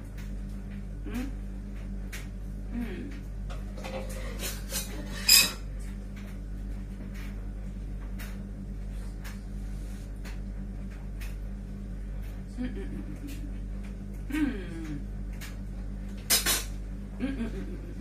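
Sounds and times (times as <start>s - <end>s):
steady low hum: 0.0s - 18.0s
metal spoon scraping in pan: 4.0s - 5.6s.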